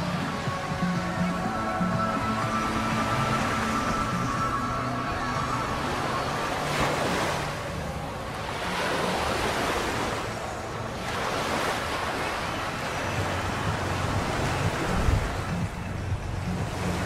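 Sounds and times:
small surf washing up a beach: 0:00.0 - 0:17.0
wind buffeting the microphone: 0:12.5 - 0:17.0.

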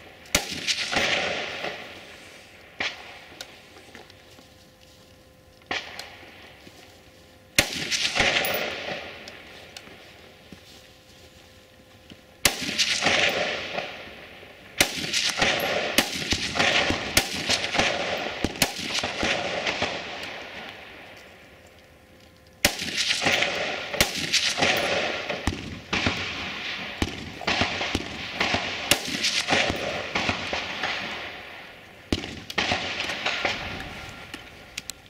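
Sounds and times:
rifle shots with echo: 0:00.0 - 0:03.5, 0:05.7 - 0:06.4, 0:07.6 - 0:09.6, 0:12.4 - 0:21.0, 0:22.6 - 0:34.4.

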